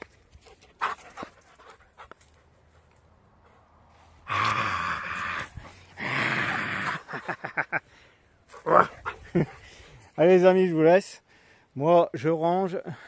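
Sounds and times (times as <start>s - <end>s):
heavy breathing: 7.8s - 10.2s, 11.2s - 11.8s.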